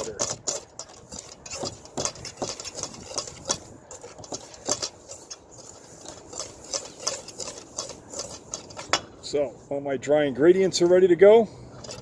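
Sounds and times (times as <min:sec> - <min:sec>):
whisk scraping metal bowl: 0:00.0 - 0:09.1, 0:11.8 - 0:12.0.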